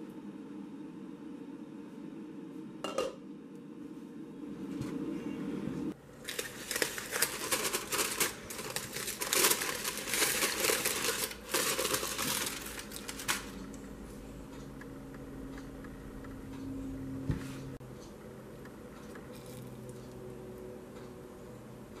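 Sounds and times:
aluminium foil crinkling: 6.2 - 13.8.

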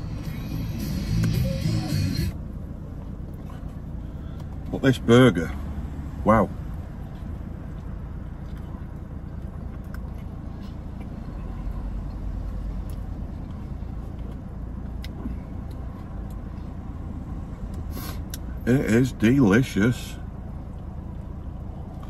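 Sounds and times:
faint chewing clicks: 7.0 - 12.2, 12.8 - 16.7.

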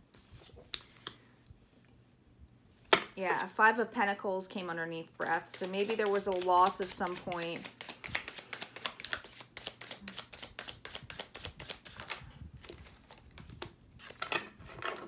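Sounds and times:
cards being shuffled: 5.2 - 14.2.

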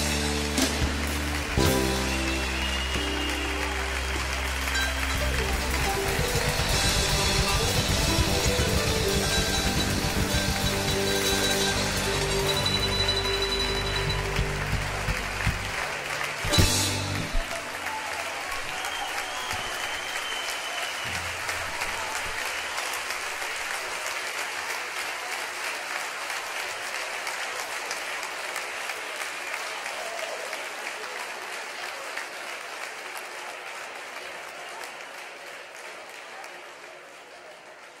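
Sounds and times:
large audience applauding: 0.0 - 38.0.

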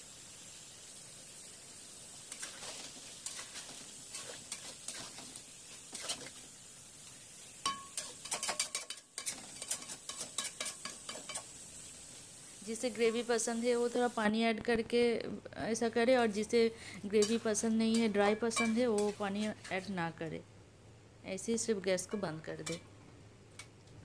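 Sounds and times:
low sizzle: 0.0 - 24.0
metal spatula scraping pan: 2.3 - 6.4, 7.7 - 11.5, 17.1 - 19.8
spatula clinking against pan: 7.6 - 11.5, 17.2 - 19.2.

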